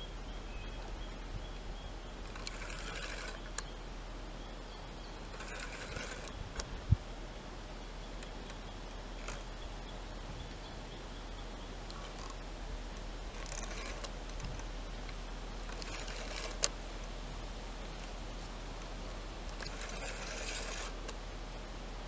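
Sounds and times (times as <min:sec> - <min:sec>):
faint ticks and rustles: 0:07.8 - 0:21.6.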